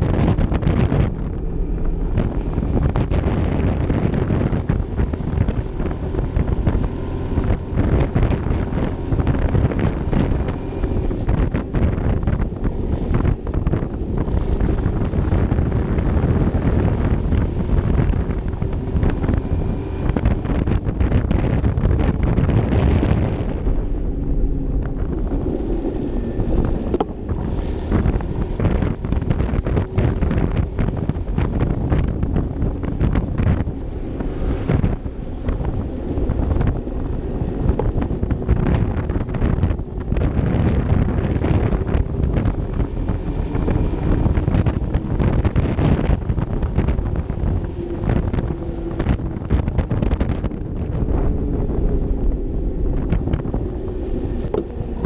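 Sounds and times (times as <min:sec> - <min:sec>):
wind buffeting microphone: 0:00.0 - 0:55.0.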